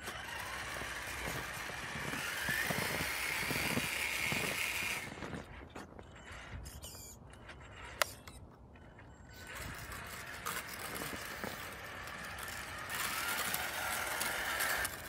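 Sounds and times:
plow blade scraping snow: 0.0s - 6.3s, 9.6s - 15.0s
electric toy truck motor: 0.0s - 15.0s
wavering motor whine: 0.0s - 15.0s.

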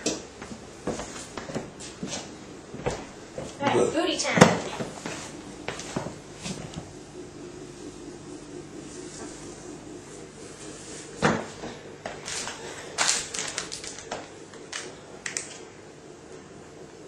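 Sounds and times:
boots knocking on tiled floor: 2.7s - 3.6s, 4.4s - 6.7s.

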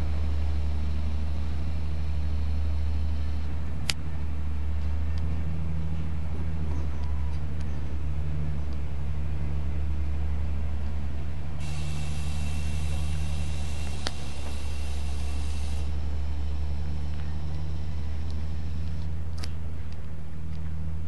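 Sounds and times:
high hissing whine: 0.0s - 4.6s, 9.9s - 20.0s
low mechanical drone: 0.0s - 21.0s.

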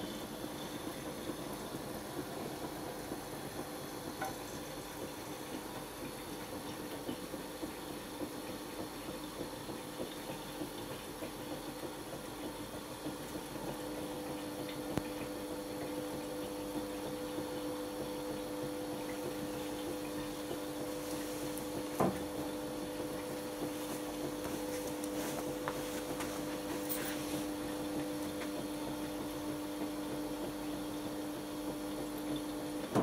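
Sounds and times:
pump hum: 0.0s - 33.0s
water swishing in dishwasher: 18.0s - 31.1s.

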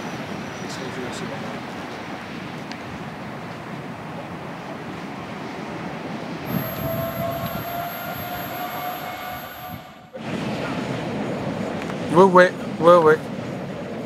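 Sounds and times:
steady multi-pitch whine: 6.5s - 10.2s.

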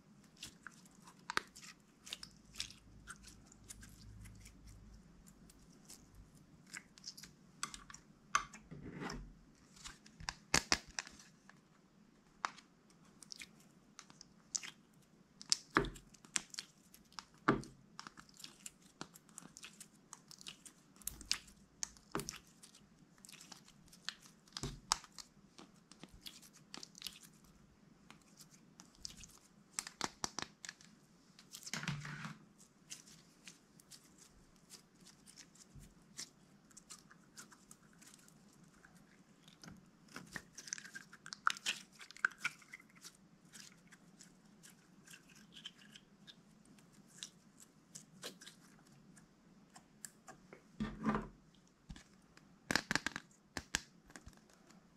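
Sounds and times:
slime squishing and popping: 10.2s - 11.1s, 15.4s - 22.6s, 28.8s - 30.8s, 52.7s - 54.5s.

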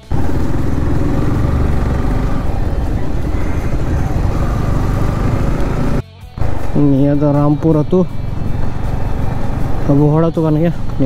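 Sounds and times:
motorcycle engine rumbling: 0.0s - 11.0s
road noise: 0.0s - 11.0s.

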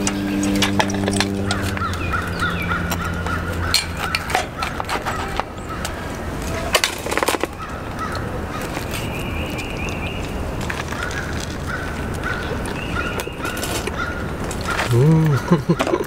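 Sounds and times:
harsh rough bird call: 0.0s - 6.1s
low hum: 0.0s - 8.0s
birds calling: 0.0s - 16.0s.

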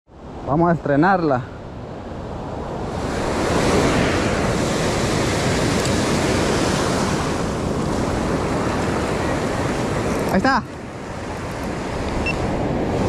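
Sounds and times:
ocean surf breaking: 0.1s - 13.0s.

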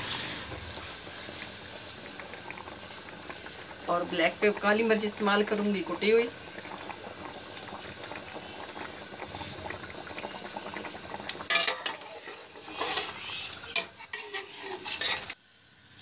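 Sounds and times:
meat sizzling in a pot: 0.0s - 16.0s
metal spoon scraping a pot: 11.5s - 15.4s.

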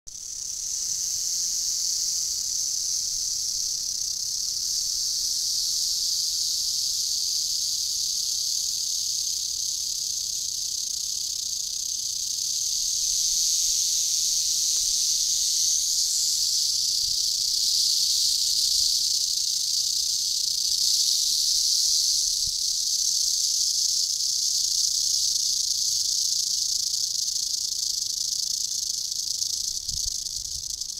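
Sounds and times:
rattlesnake rattling: 0.1s - 30.9s.

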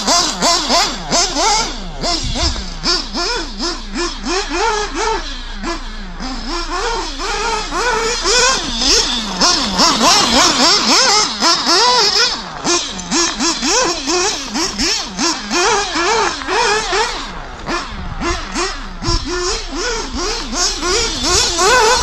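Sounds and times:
rc buggy engine revving: 0.0s - 22.0s.

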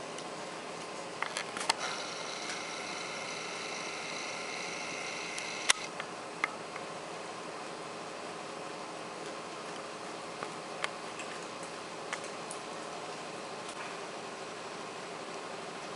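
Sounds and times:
room hiss: 1.7s - 9.1s
camera zoom motor whining: 1.8s - 5.9s
small sharp clicks: 5.3s - 6.9s.

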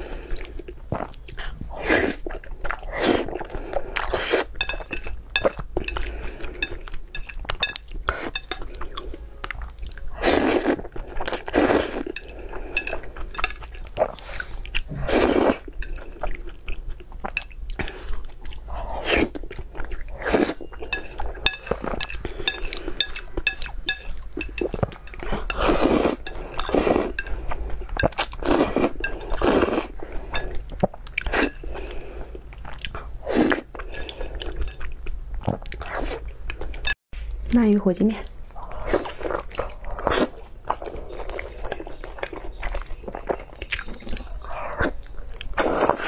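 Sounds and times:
chewing: 0.1s - 37.0s, 38.2s - 46.0s
noisy noodle slurping: 10.1s - 13.2s, 25.2s - 27.7s.

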